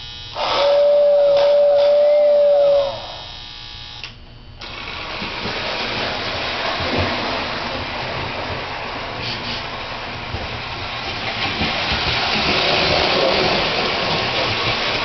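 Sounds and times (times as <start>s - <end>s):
toy train whistle: 0.0s - 3.4s
model train motor and wheels: 4.6s - 15.0s.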